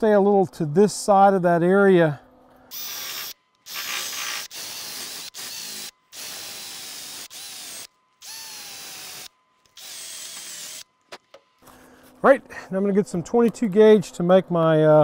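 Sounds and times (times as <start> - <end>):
drill wire brush scrubbing metal: 2.7 - 10.8
drill motor whine: 2.7 - 10.9.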